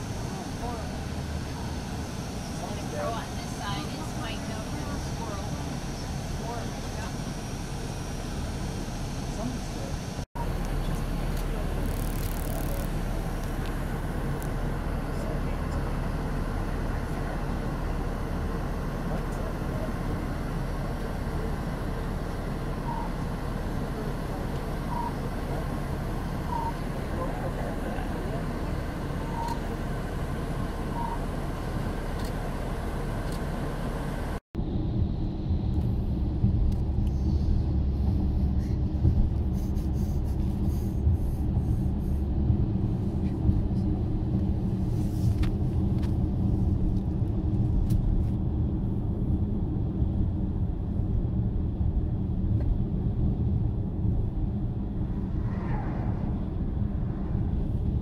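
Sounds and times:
road and engine rumble inside car: 0:00.0 - 0:58.0
passing vehicle whoosh: 0:53.5 - 0:58.0.

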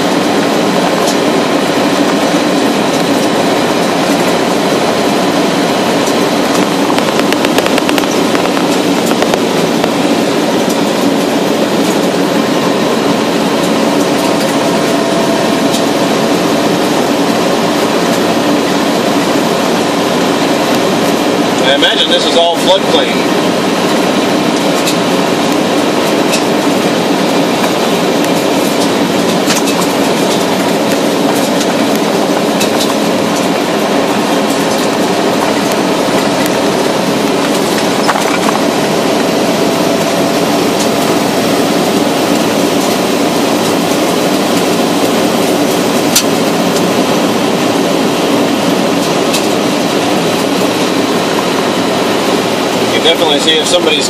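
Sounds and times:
tyres rumbling on gravel: 0:00.0 - 0:54.0
stones ticking against car: 0:06.6 - 0:10.0.

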